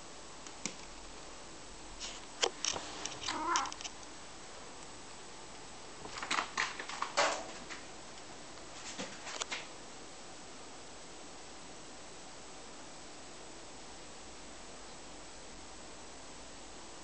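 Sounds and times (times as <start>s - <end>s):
cat meowing: 3.2s - 3.8s.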